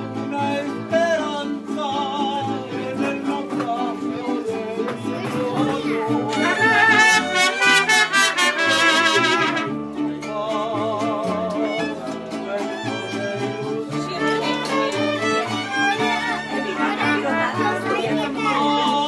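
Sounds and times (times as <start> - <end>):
mariachi band playing: 0.0 - 19.0
brass: 6.3 - 10.0
violins with vibrato: 12.8 - 17.5.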